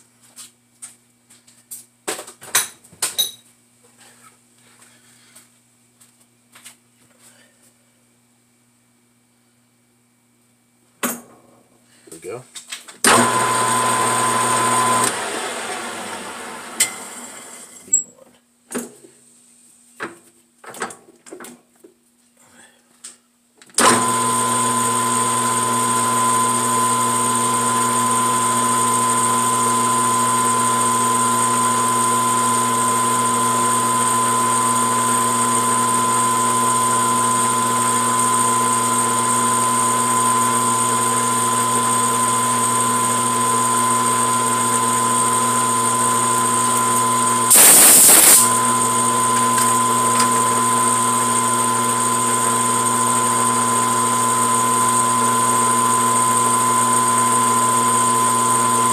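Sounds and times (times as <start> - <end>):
lathe humming with high whine: 13.1 - 17.4, 23.8 - 58.9
loud burst of noise: 47.5 - 48.6.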